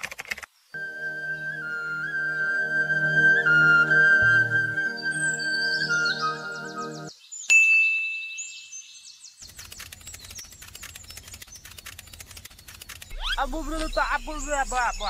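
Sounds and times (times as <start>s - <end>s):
birds chirping: 0.8s - 7.5s, 8.4s - 15.0s
fast faint ticks: 9.4s - 13.2s.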